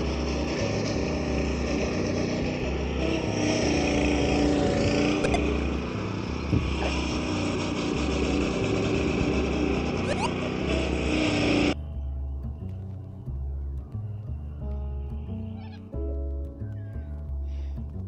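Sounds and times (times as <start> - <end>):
beat-driven music with deep bass: 10.1 - 18.0.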